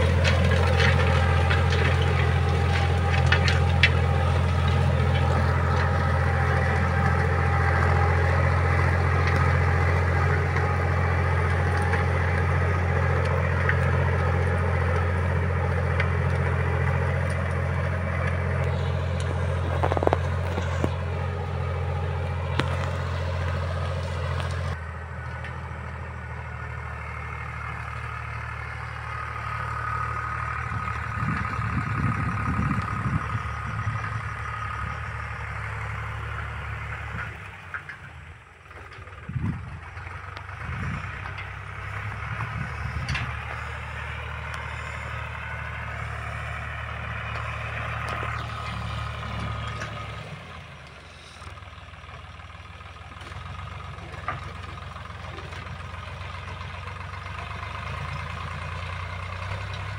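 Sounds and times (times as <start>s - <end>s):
harrow clicking: 0.0s - 25.6s
tractor diesel engine: 0.0s - 59.9s.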